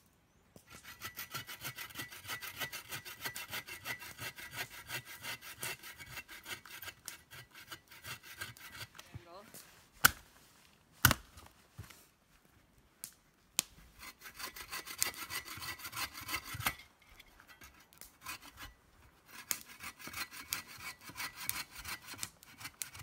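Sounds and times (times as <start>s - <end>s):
hand saw cutting branch: 0.7s - 9.1s, 14.0s - 16.9s, 17.5s - 23.0s.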